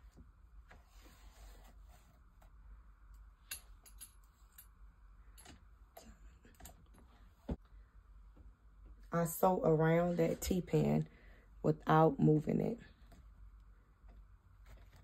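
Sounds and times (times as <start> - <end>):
faint clicks and rustles of sewing: 12.9 - 15.0.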